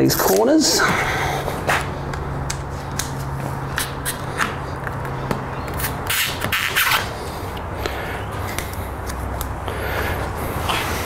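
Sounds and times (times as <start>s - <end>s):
utility knife scraping: 5.8s - 7.1s.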